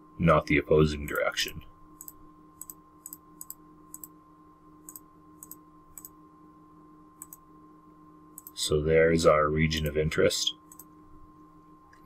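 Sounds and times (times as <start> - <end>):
faint steady hum: 0.0 - 12.0
computer mouse clicks: 2.0 - 4.2, 4.8 - 6.2, 7.2 - 7.4, 8.4 - 8.6, 10.7 - 10.9.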